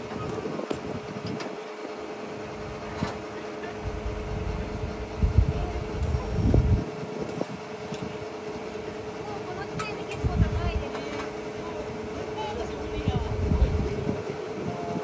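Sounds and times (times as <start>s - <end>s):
irregular low rumble: 3.8s - 6.8s
electric hum of power unit: 3.8s - 8.1s.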